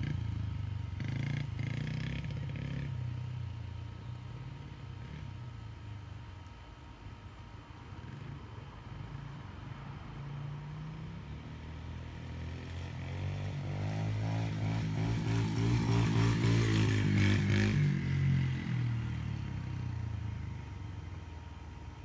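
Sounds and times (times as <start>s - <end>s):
dirt bike engine passing: 0.0s - 5.6s, 10.2s - 20.8s.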